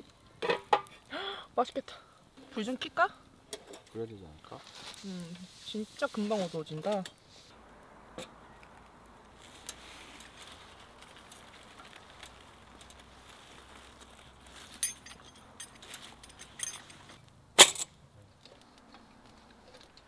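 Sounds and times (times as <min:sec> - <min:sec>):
faint hiss: 0:00.0 - 0:14.9
lantern metal clinks and rattles: 0:14.6 - 0:17.9
sharp metallic clack: 0:17.6 - 0:17.9.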